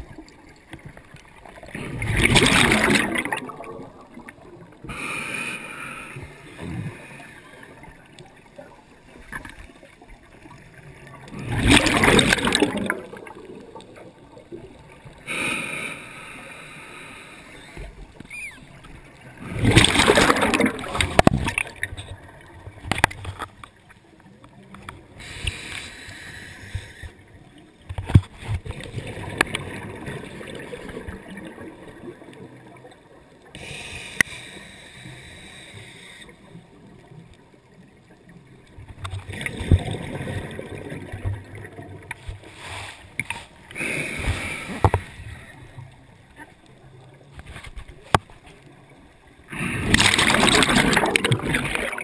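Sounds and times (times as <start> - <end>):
gurgling rush of bubbles: 0.0 - 4.9, 6.3 - 15.3, 19.1 - 23.3, 28.4 - 33.6, 38.8 - 46.0, 49.5 - 52.0
scuba regulator breathing: 4.8 - 7.6, 15.2 - 18.0, 25.2 - 27.2, 33.5 - 36.5, 42.4 - 45.8.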